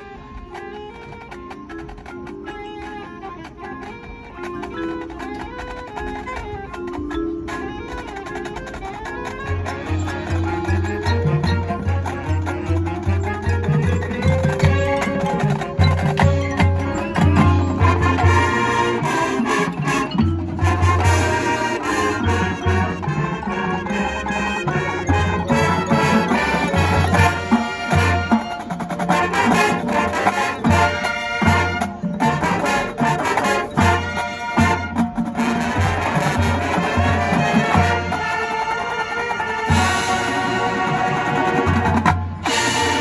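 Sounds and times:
drums and percussion: 0.0 - 43.0
brass chords: 9.9 - 43.0.

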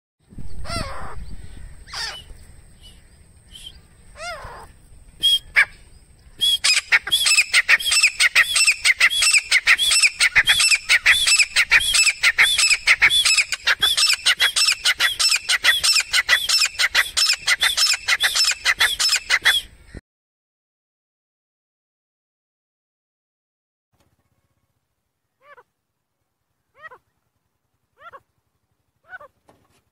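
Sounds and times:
francolin calling: 0.5 - 20.0, 24.1 - 25.7, 26.5 - 27.3, 27.9 - 29.4.

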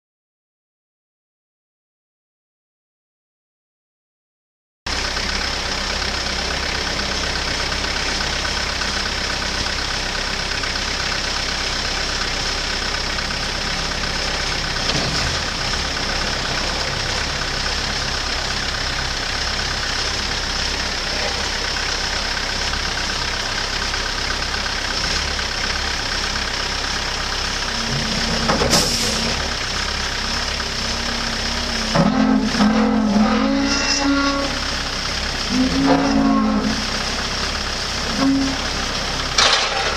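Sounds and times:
forklift engine running: 4.9 - 39.9
pitched tone: 31.9 - 34.8, 35.5 - 37.0.

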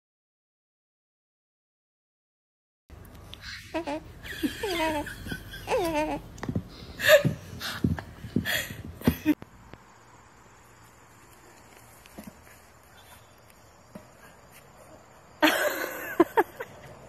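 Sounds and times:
faint background noise: 2.9 - 17.0
baby cooing and giggling: 3.4 - 6.4.

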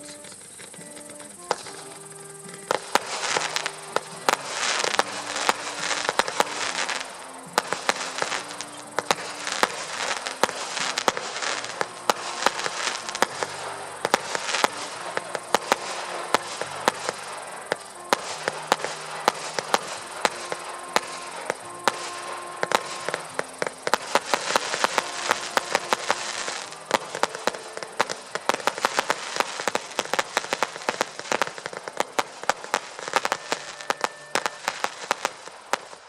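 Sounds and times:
fireworks popping and crackling: 0.0 - 36.0
slow background music: 0.0 - 36.0.

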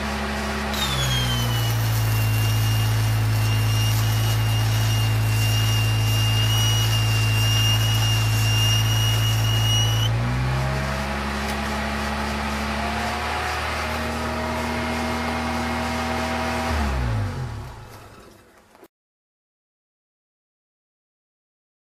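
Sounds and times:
engine running under load: 0.0 - 18.8
welding arc crackle: 0.1 - 10.1, 11.1 - 16.6
high whine: 0.5 - 10.2.

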